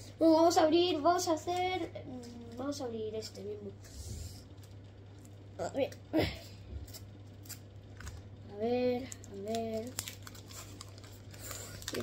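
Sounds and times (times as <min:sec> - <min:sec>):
paper wrapper tearing: 0:09.2 - 0:12.0.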